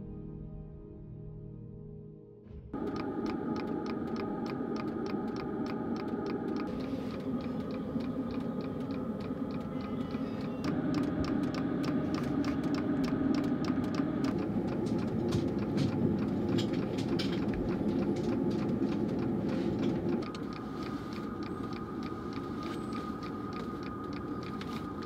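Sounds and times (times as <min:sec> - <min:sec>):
heater fan running: 0:02.8 - 0:25.0
quick regular ticking: 0:02.8 - 0:25.0
steady high whine: 0:02.8 - 0:25.0.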